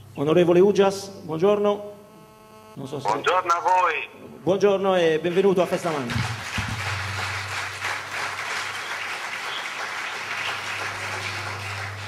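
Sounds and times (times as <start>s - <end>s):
audience applauding: 5.9s - 12.0s
low hum: 6.2s - 9.1s.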